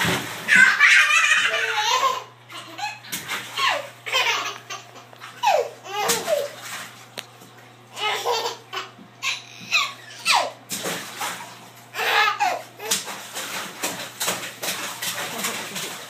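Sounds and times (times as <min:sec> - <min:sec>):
baby laughing: 0:00.5 - 0:06.6, 0:07.9 - 0:10.6, 0:11.9 - 0:13.1.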